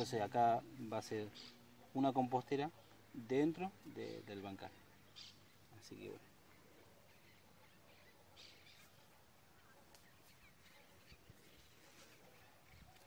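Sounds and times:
soft ticks and rustles: 8.7 - 13.0.

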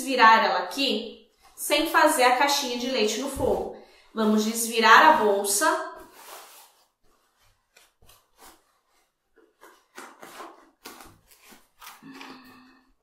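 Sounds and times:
fabric rustling and rubbing: 5.9 - 12.0.

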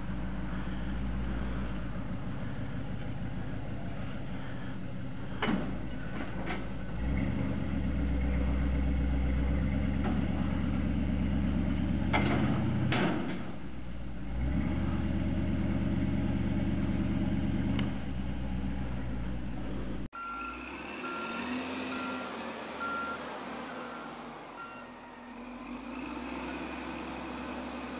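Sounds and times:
pickup truck engine running: 0.0 - 12.9.

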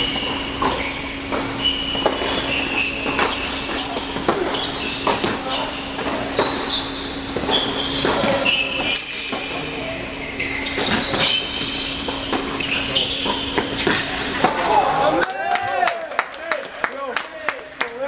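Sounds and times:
ball bouncing on hard court: 0.0 - 9.6, 10.6 - 14.6
sneakers squeaking on court: 0.0 - 14.4
steady hum: 0.0 - 15.2
racquets striking tennis ball: 0.1 - 6.7, 7.3 - 9.6, 10.7 - 14.6.

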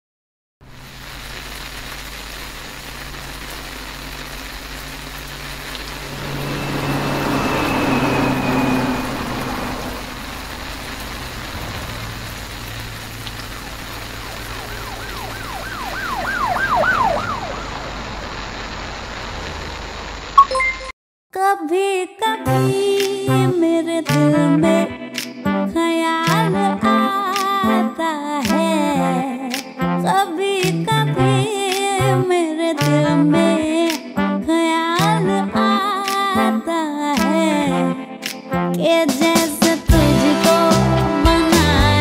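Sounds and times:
traffic rumble: 5.4 - 20.4
vehicle passing: 5.8 - 18.4
siren yelping: 13.5 - 18.3.

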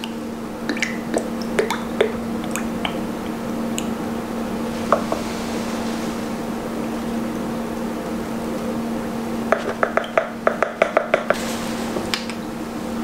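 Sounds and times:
bubbly plops of escaping air: 0.0 - 3.9.

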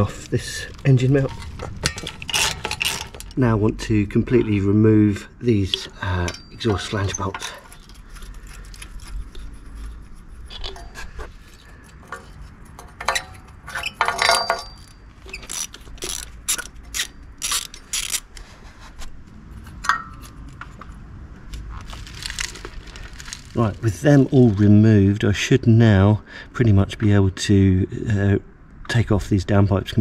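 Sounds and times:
metallic clinks of tool on bolts: 12.9 - 15.0
ratchet spanner clicking: 14.3 - 18.3.

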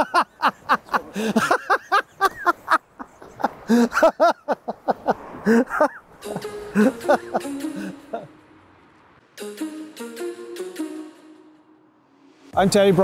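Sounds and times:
man laughing hard: 0.0 - 8.4.

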